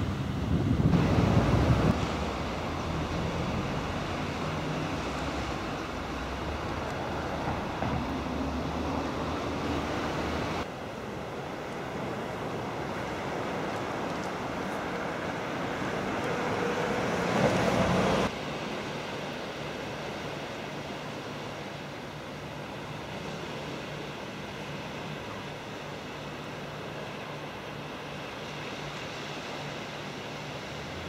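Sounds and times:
wind buffeting microphone: 0.0s - 10.7s.

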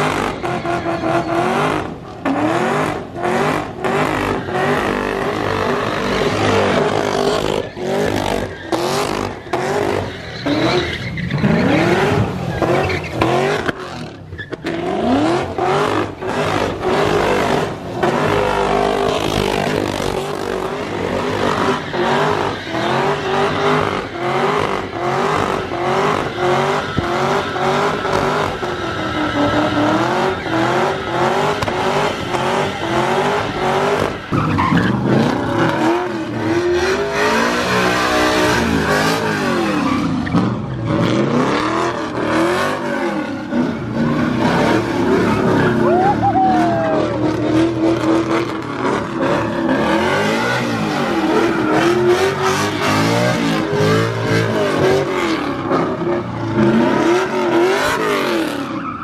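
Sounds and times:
tyres squealing on pavement: 0.0s - 2.4s, 3.5s - 41.0s, 42.8s - 53.7s, 58.0s - 59.0s
car engine revving hard: 0.0s - 58.9s.

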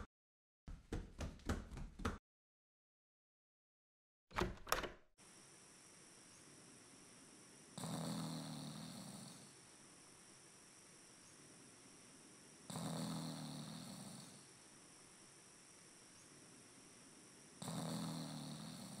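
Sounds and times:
faint high buzz: 5.2s - 12.7s, 13.6s - 17.6s
person snoring: 7.8s - 9.7s, 12.6s - 14.6s, 17.5s - 19.0s.

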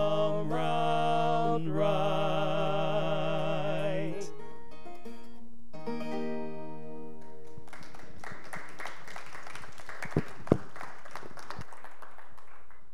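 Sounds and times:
acoustic guitar chord ringing: 0.0s - 7.5s
congregation applauding: 7.6s - 12.9s.

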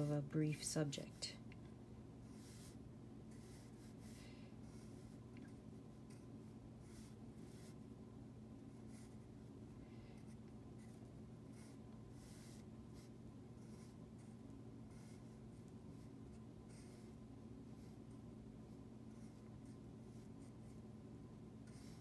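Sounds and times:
low steady hum: 0.0s - 22.0s
pencil scratching on paper: 2.2s - 7.8s, 8.7s - 9.3s, 10.2s - 18.2s, 19.1s - 20.8s, 21.6s - 22.0s.

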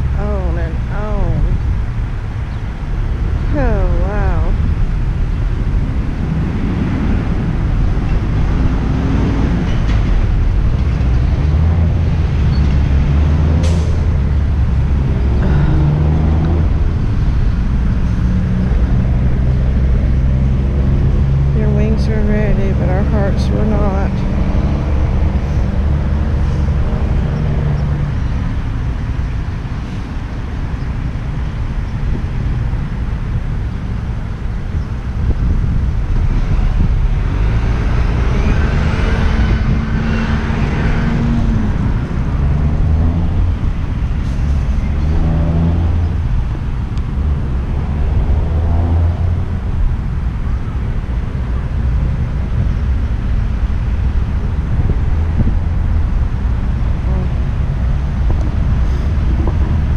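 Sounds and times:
traffic engine rumble: 0.0s - 59.9s
vehicle passing: 35.6s - 59.9s.

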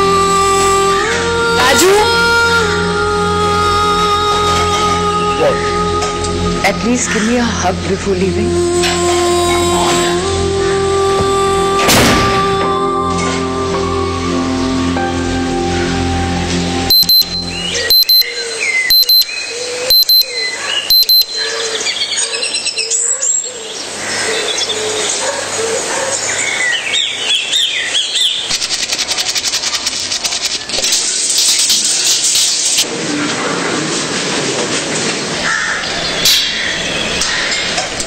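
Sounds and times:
high electronic beeps: 16.9s - 18.3s, 18.9s - 19.3s, 19.9s - 20.3s, 20.9s - 21.4s
birds chirping: 16.9s - 31.6s
water spraying from a shower: 28.5s - 32.8s.

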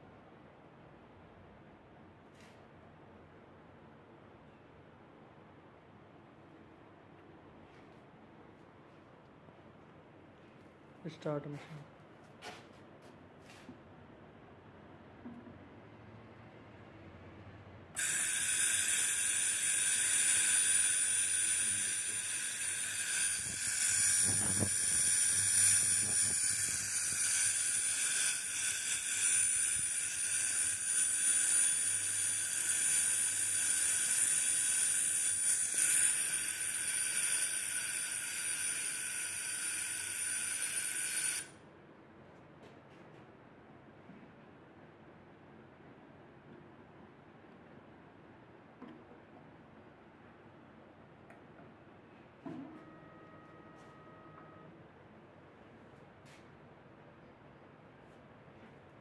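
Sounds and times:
milk analyser hissing and whining: 18.0s - 41.5s.

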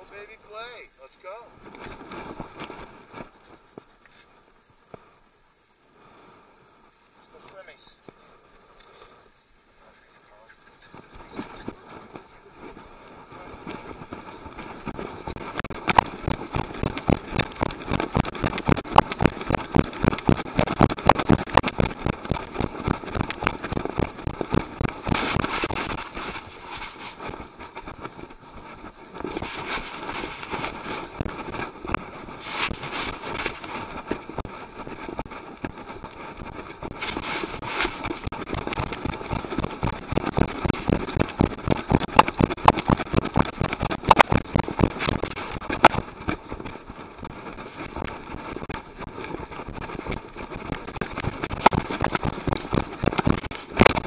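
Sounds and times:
rhythmic knocks and rumble: 10.9s - 54.0s.

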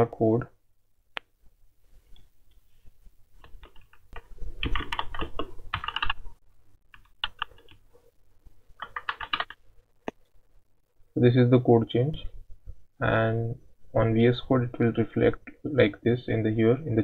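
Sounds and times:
typing on a keyboard: 3.4s - 6.2s, 6.9s - 7.8s, 8.8s - 9.6s.

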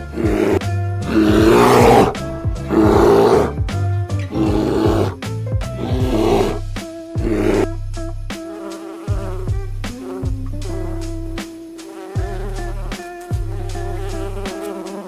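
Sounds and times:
animal harsh loud calls: 0.0s - 3.6s, 4.3s - 5.2s, 5.8s - 6.6s, 7.2s - 7.8s
background music: 0.0s - 15.0s.

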